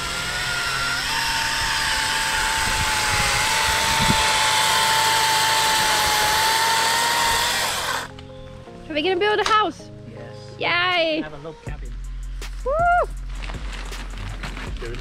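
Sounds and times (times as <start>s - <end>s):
chainsaw cutting a log: 0.0s - 8.1s.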